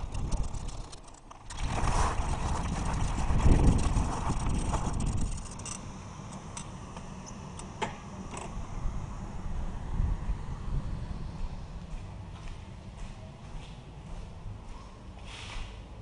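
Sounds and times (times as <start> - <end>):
bicycle clicks and rattles: 0.0 - 5.8
bicycle riding on rough track: 0.0 - 5.8.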